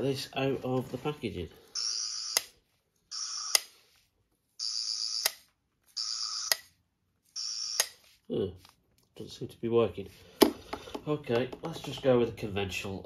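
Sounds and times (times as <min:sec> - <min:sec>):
toy electronic buzzing: 0:03.1 - 0:03.7, 0:06.0 - 0:06.7, 0:07.4 - 0:08.0.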